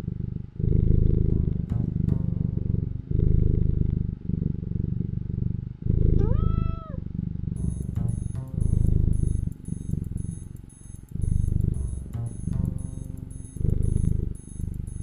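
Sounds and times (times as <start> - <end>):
cat purring: 0.0 - 15.0
cat chirps: 6.2 - 7.0
cat meowing: 6.2 - 7.0.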